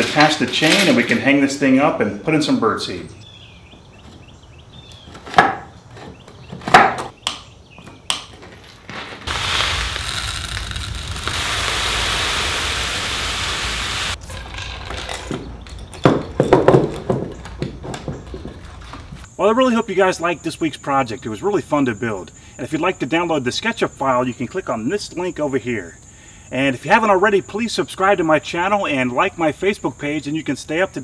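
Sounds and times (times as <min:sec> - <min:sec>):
birdseed pouring hiss: 0:09.3 - 0:14.2.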